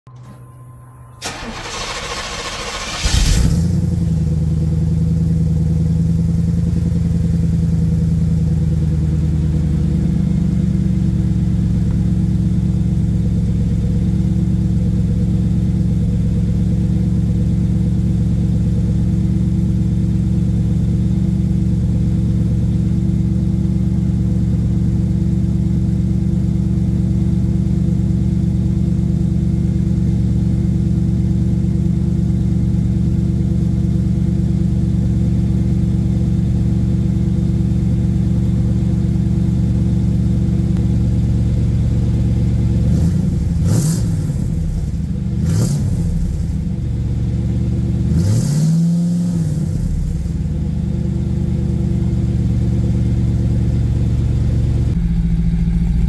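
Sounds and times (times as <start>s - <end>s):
engine starter cranking: 0.2s - 3.9s
car engine idling: 1.2s - 56.0s.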